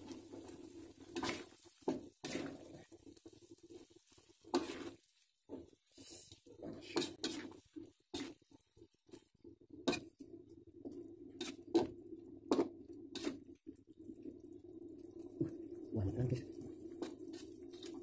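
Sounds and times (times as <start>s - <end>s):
metal spoon scraping a wok: 2.2s - 2.6s, 4.5s - 5.0s, 6.1s - 8.4s, 12.5s - 13.4s.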